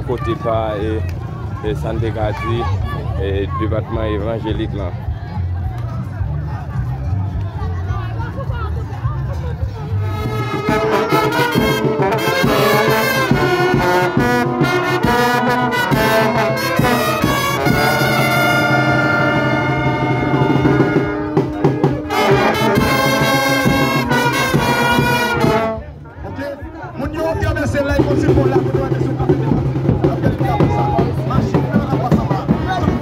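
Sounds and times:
brass band playing: 9.8 - 26.1, 27.5 - 33.0.

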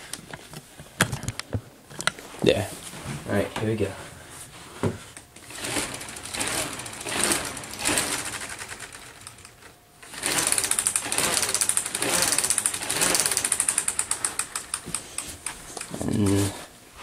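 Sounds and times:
plastic siren rotor clicking rattle: 5.4 - 15.9.

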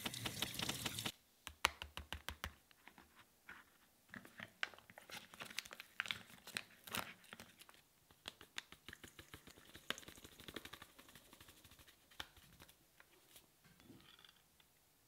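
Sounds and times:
plastic pouch crinkling: 4.7 - 8.8.

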